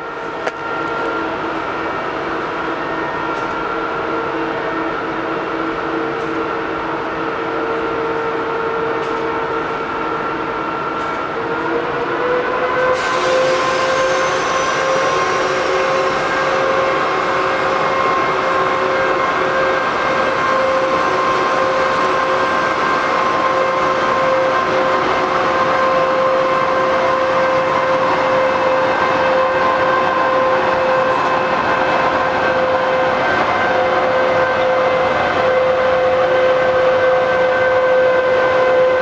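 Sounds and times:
electric locomotive whine: 0.0 - 39.0
train rumbling: 0.0 - 39.0
hiss: 13.0 - 15.7.

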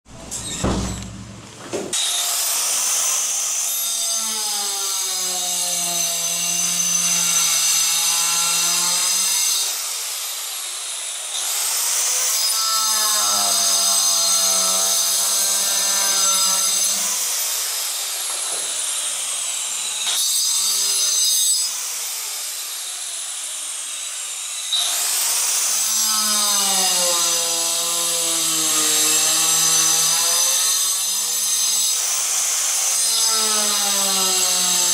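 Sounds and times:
electric tile saw cutting tile: 1.9 - 34.9.

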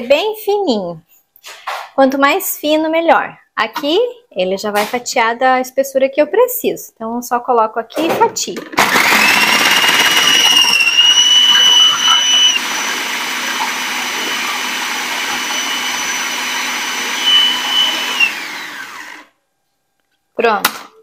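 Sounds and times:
food processor motor whining: 8.8 - 19.4.

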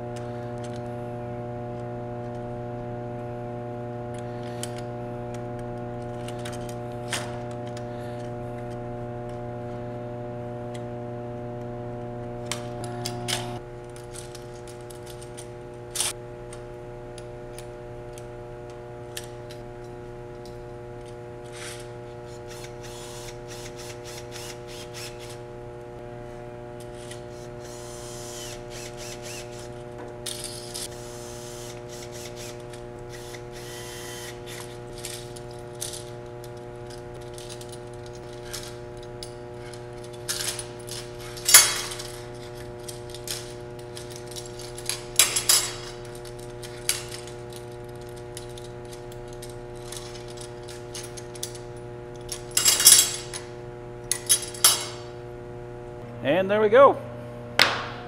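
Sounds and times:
steady low hum: 0.0 - 58.0
metal clamps clicking and rattling: 34.0 - 53.5, 54.1 - 55.1
metal clanks: 34.9 - 53.5.

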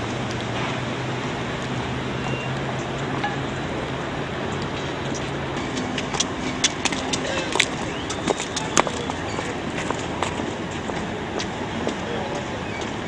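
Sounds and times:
steady rushing outdoor noise: 0.0 - 13.0.

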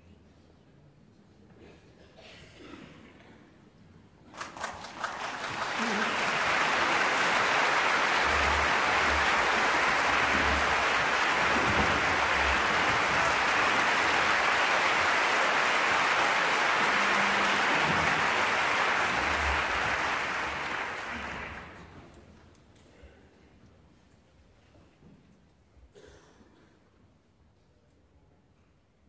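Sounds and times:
audience applauding: 4.3 - 22.1.

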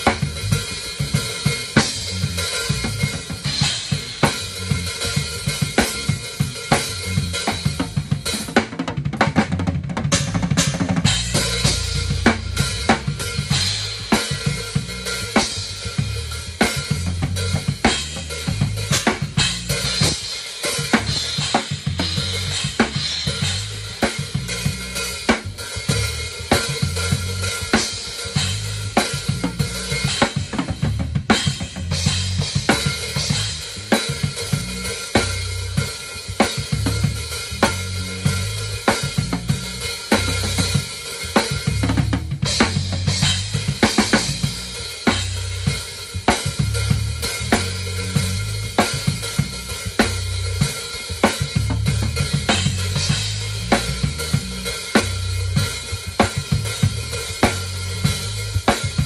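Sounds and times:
cymbals: 0.0 - 8.6, 10.1 - 59.0
snare drum: 19.0 - 24.5, 41.4 - 44.4.

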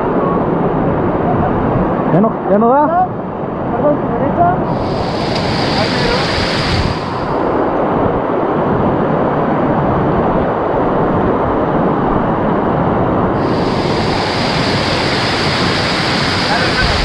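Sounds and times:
waterfall rushing: 4.7 - 7.7, 13.4 - 17.0.

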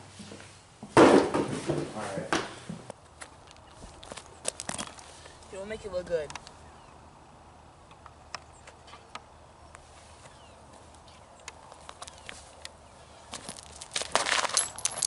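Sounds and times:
footsteps on gravel: 3.1 - 5.5, 13.2 - 15.0.

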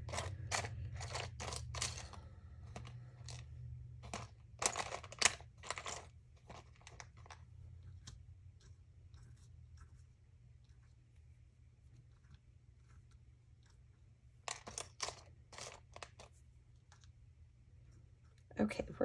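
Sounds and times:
wooden pieces clattering in packet: 0.0 - 7.4, 14.5 - 16.3
low steady hum: 0.0 - 19.0.

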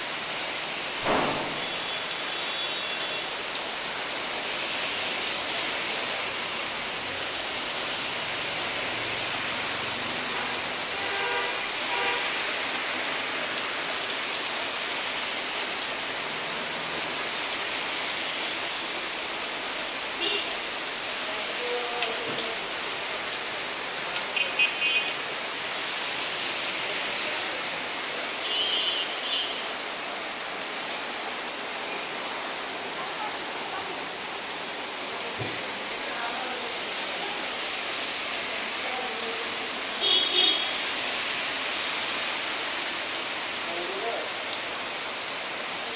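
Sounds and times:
steady rain falling: 0.0 - 45.9.

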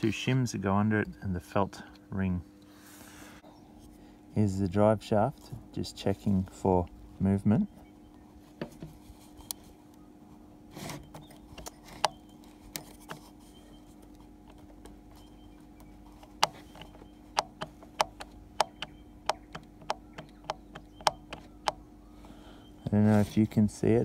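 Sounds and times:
drive shaft clicking: 14.0 - 21.9.

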